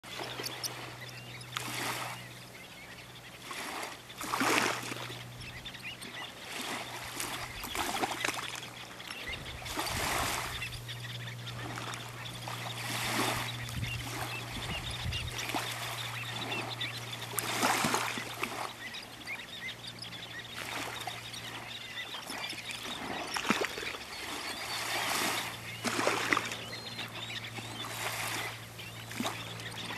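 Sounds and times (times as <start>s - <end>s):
shorebirds chirping: 0.0s - 29.9s
small waves washing on sand: 3.4s - 5.2s, 9.4s - 10.7s, 11.5s - 18.9s, 20.5s - 29.9s.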